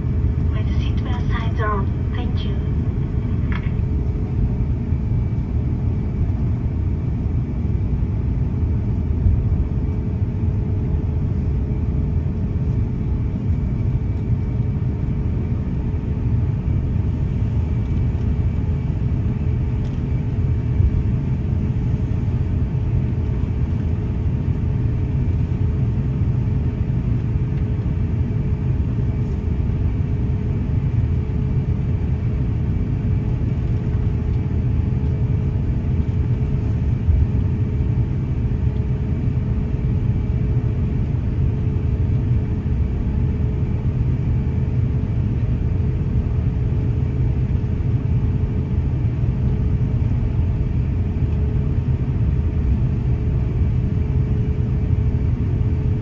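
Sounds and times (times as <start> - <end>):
airliner cabin rumble: 0.0 - 56.0
faint steady tones: 0.3 - 4.0.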